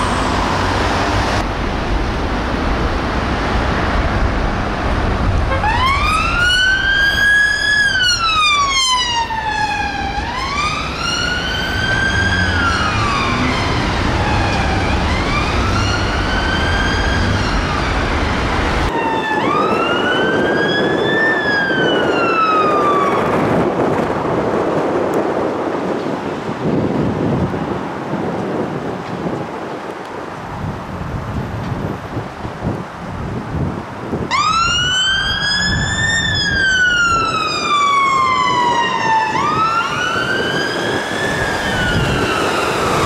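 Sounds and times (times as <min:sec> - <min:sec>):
engine and traffic noise: 0:00.0 - 0:43.0
ambulance siren wailing: 0:05.5 - 0:23.5, 0:34.3 - 0:43.0
police siren wailing: 0:05.5 - 0:23.7, 0:34.3 - 0:43.0.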